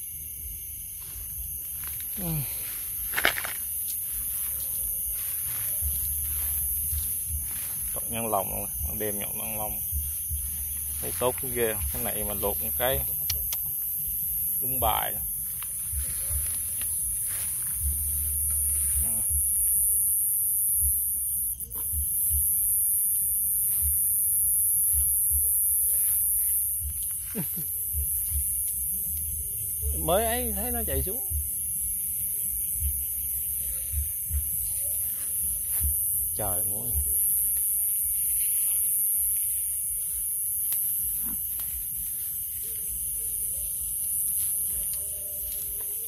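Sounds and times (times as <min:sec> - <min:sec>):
mosquitoes whining: 0:00.0 - 0:28.5
night insects chirring: 0:00.0 - 0:46.0
rustling through vegetation: 0:00.8 - 0:13.2, 0:13.8 - 0:19.2
low thumps: 0:09.7 - 0:12.5.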